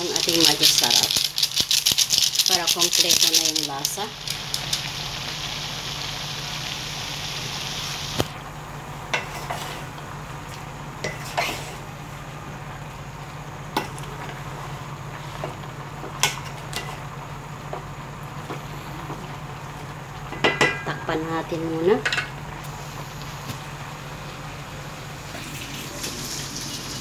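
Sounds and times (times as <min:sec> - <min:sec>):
vegetables sizzling in a pot: 0:00.0 - 0:27.0
loud hiss: 0:02.5 - 0:08.4.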